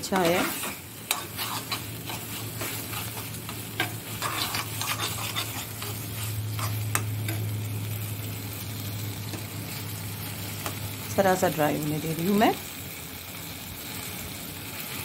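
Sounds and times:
spoon stirring and scraping: 0.0s - 7.5s
food sizzling in a saucepan: 0.0s - 15.0s.

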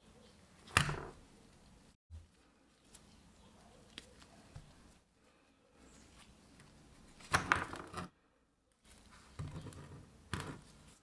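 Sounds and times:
gloves rustling: 1.2s - 7.4s.

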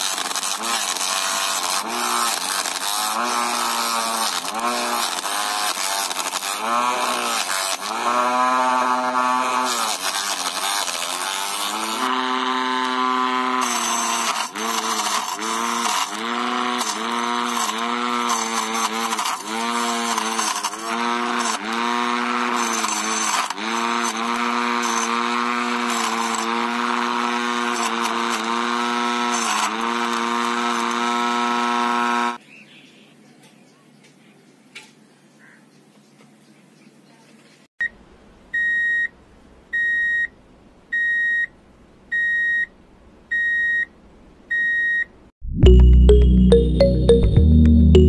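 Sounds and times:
small motor whining: 0.0s - 32.4s.

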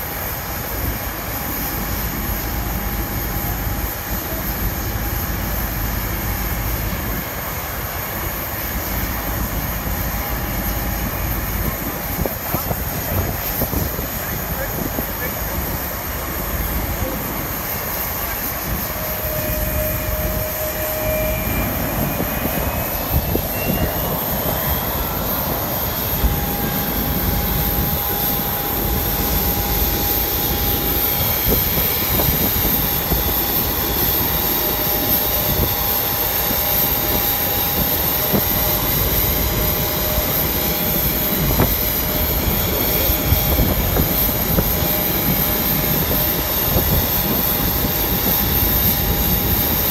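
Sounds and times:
jet engine whine: 0.0s - 49.9s
mid-pitched hum: 0.5s - 35.7s.

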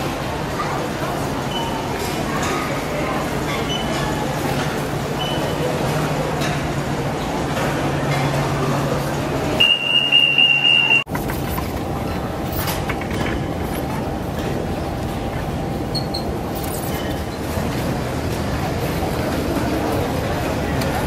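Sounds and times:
high-pitched beep: 9.6s - 11.1s
baggage carousel rumbling and clattering: 11.1s - 21.0s.

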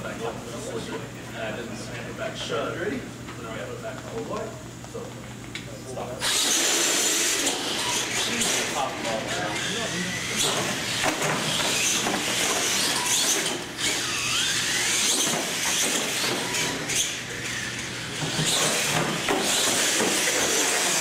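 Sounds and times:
electric motors whining: 6.0s - 21.0s.

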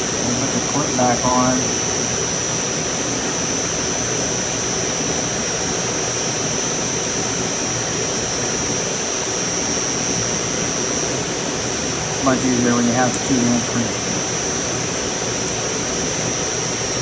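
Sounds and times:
air conditioner air rushing: 0.0s - 17.0s
high-pitched whine: 0.0s - 17.0s.

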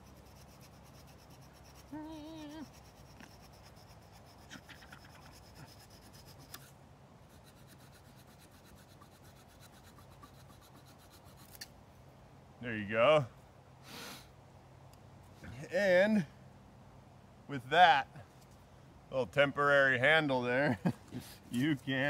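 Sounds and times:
knife scraping wood: 0.0s - 11.7s.

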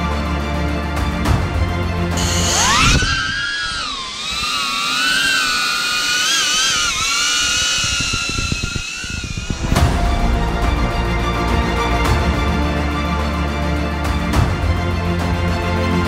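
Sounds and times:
drone propellers whining: 2.1s - 13.0s.

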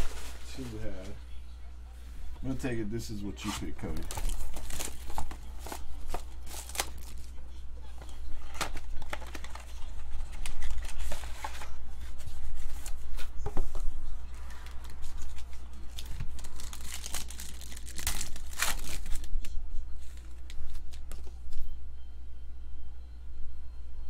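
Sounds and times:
foil pack crinkling and tearing: 3.8s - 7.4s, 8.4s - 11.8s, 14.5s - 21.3s.

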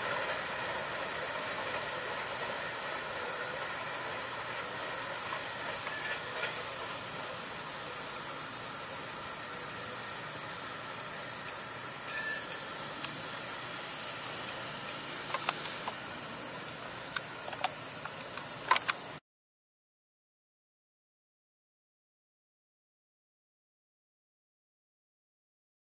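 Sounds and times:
high-pitched insect chorus: 0.0s - 19.2s
faint clicks: 13.0s - 13.2s, 15.2s - 16.0s, 17.1s - 19.1s.

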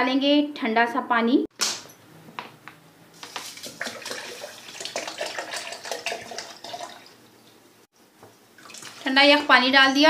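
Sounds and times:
water pouring into blender jar: 3.3s - 7.2s, 8.6s - 9.1s.

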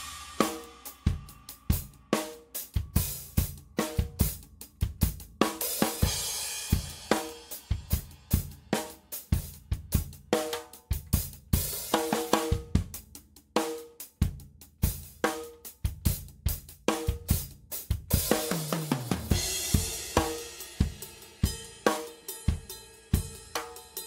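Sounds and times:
cymbal crash: 0.0s - 1.0s
drum kit groove: 0.0s - 24.0s.

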